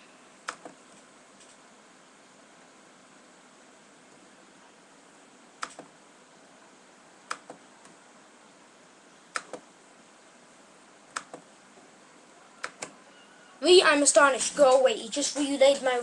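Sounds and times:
faint steady hiss: 0:00.0 - 0:16.0
computer mouse clicking: 0:00.4 - 0:01.6, 0:05.6 - 0:05.9, 0:07.3 - 0:08.0, 0:09.3 - 0:09.6, 0:11.1 - 0:11.5, 0:12.6 - 0:13.0.

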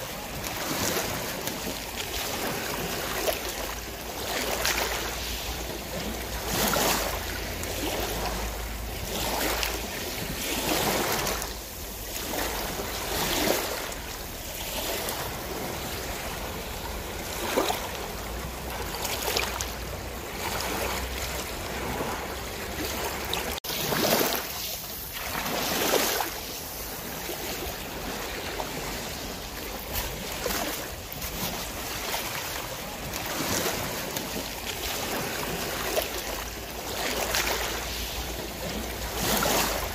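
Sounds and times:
water splashing against boat hull: 0:00.0 - 0:39.9.

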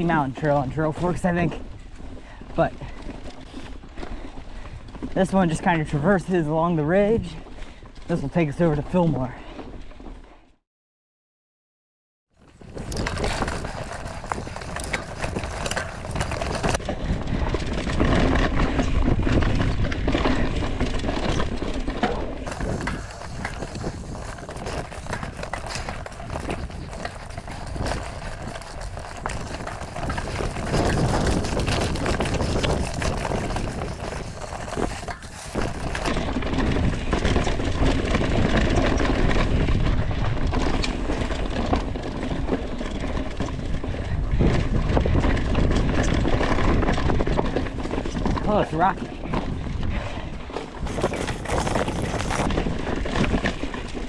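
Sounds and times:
clicking rattle from bike: 0:01.0 - 0:05.9, 0:12.4 - 0:48.6, 0:49.2 - 0:54.0
tyres crunching through dry leaves: 0:12.4 - 0:16.8, 0:21.5 - 0:36.2, 0:50.8 - 0:53.4.

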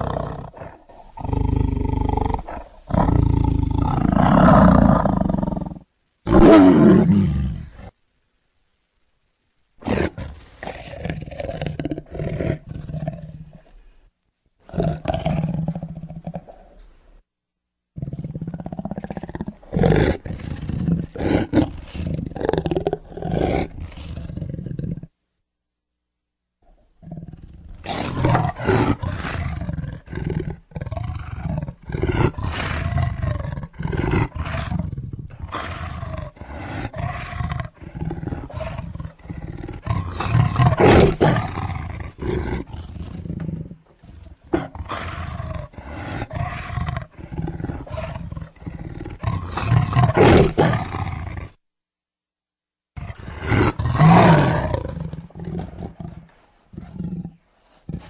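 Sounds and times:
tiger roaring: 0:00.0 - 0:07.9, 0:09.8 - 0:13.7, 0:14.7 - 0:16.8, 0:18.0 - 0:25.1, 0:27.0 - 0:51.6, 0:53.0 - 0:58.0.

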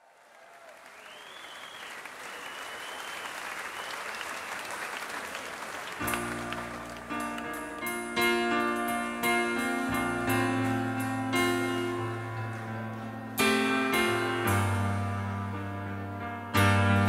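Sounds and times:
audience applause: 0:00.0 - 0:07.8
music with held chord tones: 0:06.0 - 0:17.0.

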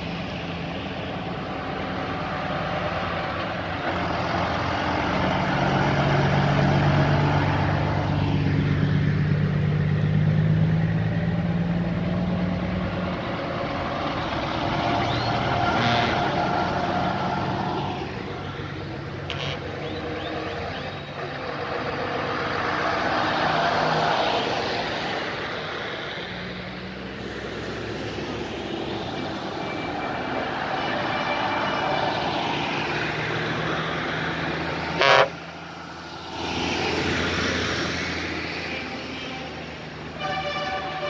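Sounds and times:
heavy trucks driving past: 0:00.0 - 0:41.0
truck horn blast: 0:15.6 - 0:16.6, 0:19.2 - 0:19.7, 0:34.9 - 0:35.4, 0:38.7 - 0:41.0.

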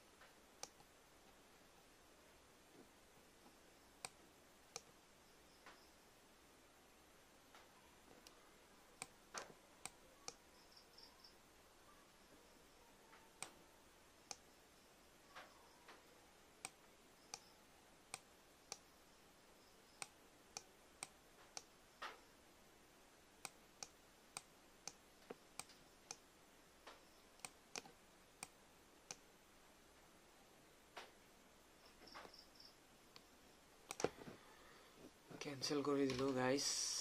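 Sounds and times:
faint hiss: 0:00.0 - 0:37.0
computer mouse and keyboard clicks: 0:33.9 - 0:34.2.

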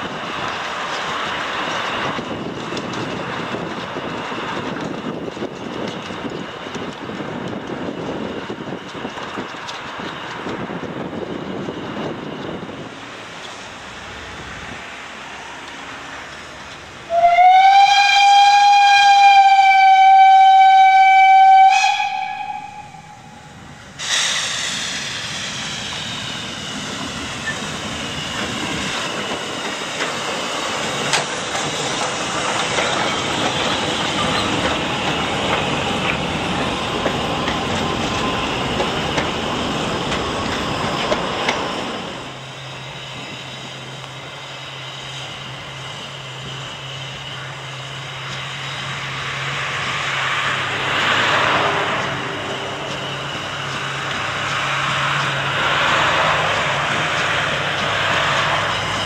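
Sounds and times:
train clattering over rails: 0:00.0 - 0:17.7, 0:21.7 - 0:59.0
locomotive passing with hissing steam: 0:00.0 - 0:59.0
steam locomotive whistle: 0:17.1 - 0:25.2.

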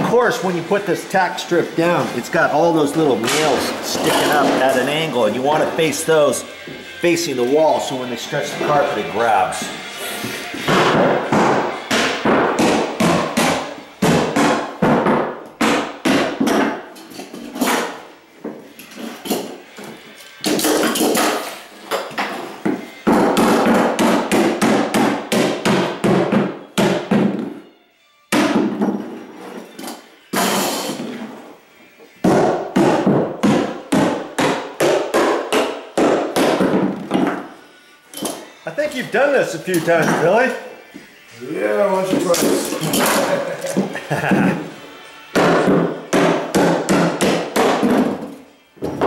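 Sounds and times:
hammer striking nails: 0:10.6 - 0:18.0, 0:20.4 - 0:27.5, 0:28.3 - 0:29.1, 0:32.2 - 0:37.5, 0:45.3 - 0:49.0.

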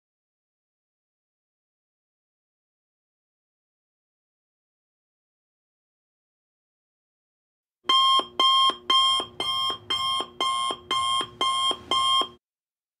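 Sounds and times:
timer alarm beeping: 0:07.9 - 0:12.4.

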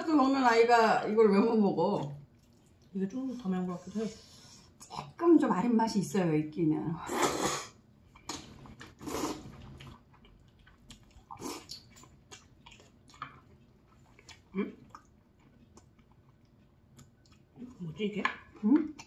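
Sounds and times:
wet chewing: 0:01.9 - 0:03.6, 0:08.0 - 0:19.0
people slurping noodles: 0:07.0 - 0:07.8, 0:08.4 - 0:09.9.

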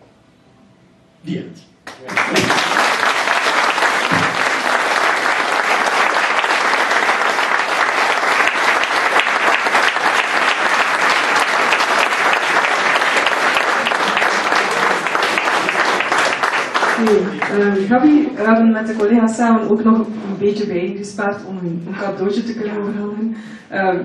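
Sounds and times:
audience applauding: 0:01.9 - 0:18.2.

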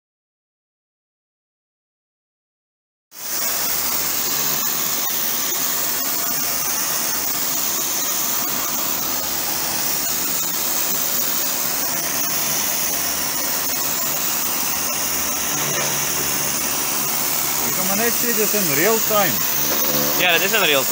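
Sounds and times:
pressure washer jet hissing: 0:03.2 - 0:20.9
low hum: 0:14.8 - 0:17.8, 0:19.4 - 0:20.5.

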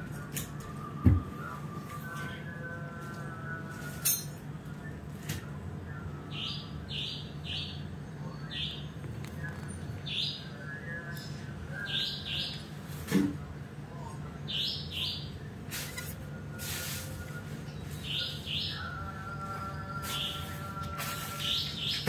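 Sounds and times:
steady low hum: 0:00.0 - 0:22.0
birds chirping: 0:05.9 - 0:12.8, 0:17.5 - 0:22.0.

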